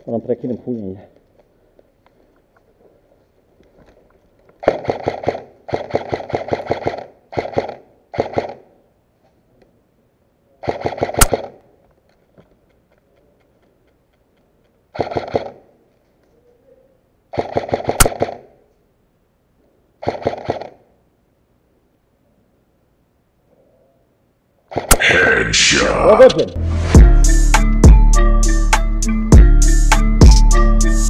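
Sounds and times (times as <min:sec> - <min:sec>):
airsoft rifle firing bursts: 0:04.6 - 0:08.7, 0:10.6 - 0:11.6, 0:14.9 - 0:15.7, 0:17.3 - 0:18.6, 0:20.0 - 0:20.9, 0:24.7 - 0:25.2.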